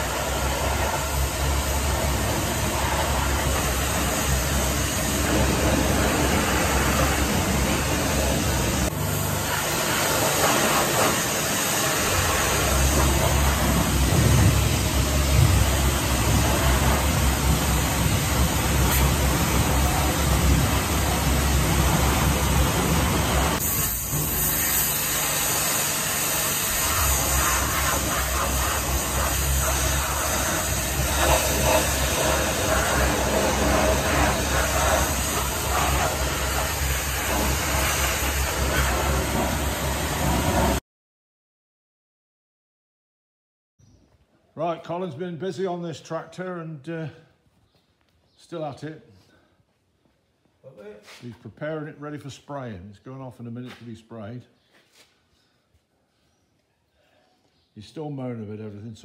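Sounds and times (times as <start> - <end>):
machine running hum: 0.0 - 23.6
pressure washer spray hissing on metal: 0.0 - 40.8.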